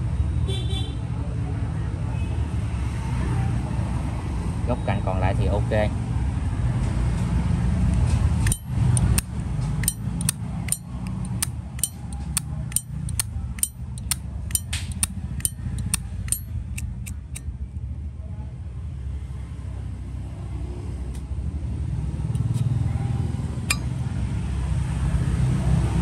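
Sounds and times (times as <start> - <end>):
lighter lid metallic clinks: 8.4 - 9.2, 9.8 - 17.4.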